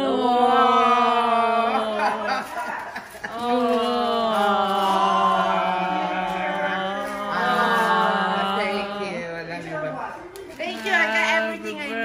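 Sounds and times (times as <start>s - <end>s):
person chanting long notes: 0.0s - 2.5s, 3.3s - 9.6s.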